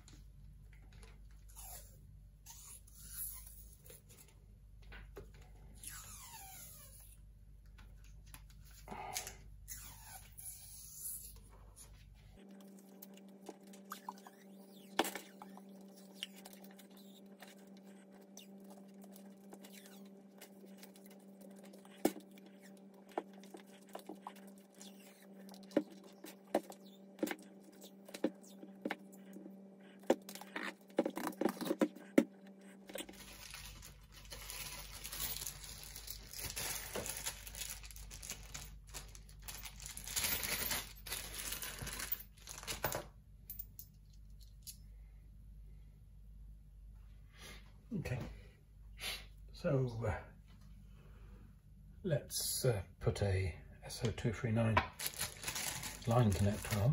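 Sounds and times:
steady low hum: 0.0 - 56.9
rustly handling noise: 54.9 - 56.9.

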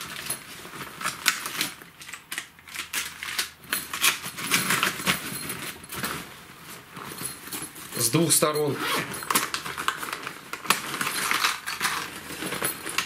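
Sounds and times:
nylon fabric rustling: 4.2 - 13.0
plastic packets crinkling: 9.2 - 13.0.

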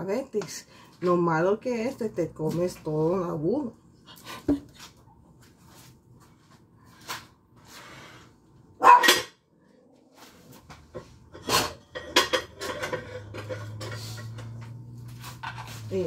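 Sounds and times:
dog barking: 8.8 - 9.2
dishes clattering in a sink: 8.9 - 9.4, 10.8 - 14.8.

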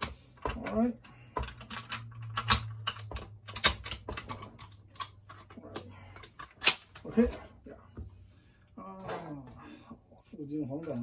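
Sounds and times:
rifle parts clicking: 1.4 - 7.1.

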